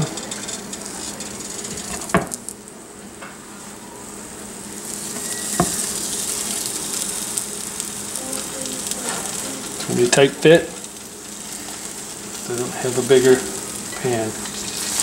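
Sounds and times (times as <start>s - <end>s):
sandwiches sizzling in skillet: 3.6s - 15.0s.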